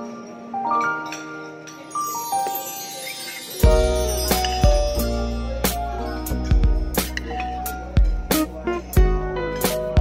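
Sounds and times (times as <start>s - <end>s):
held melody notes: 1.7s - 7.9s
deep bass and drum beat: 3.7s - 7.2s, 7.9s - 10.0s.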